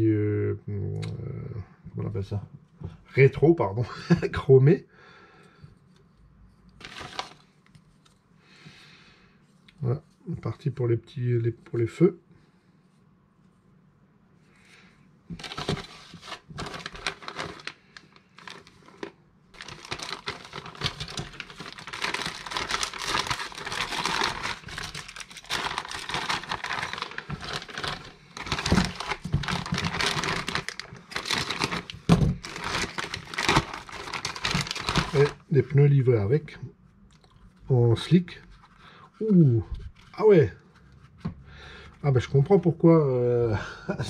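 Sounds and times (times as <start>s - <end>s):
plastic packaging crinkling: 6.8s - 8.1s, 15.3s - 35.5s.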